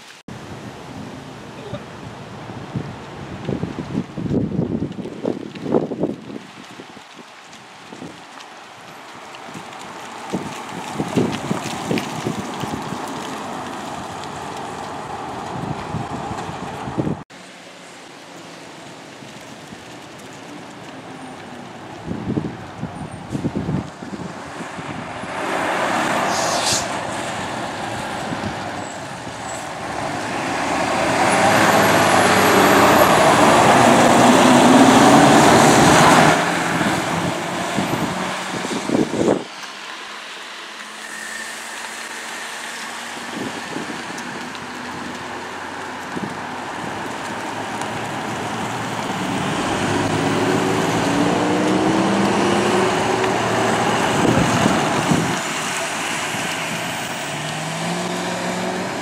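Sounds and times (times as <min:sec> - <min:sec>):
fire engine diesel driving past: 0:08.3 - 0:59.0
ambulance engine approaching: 0:08.4 - 0:59.0.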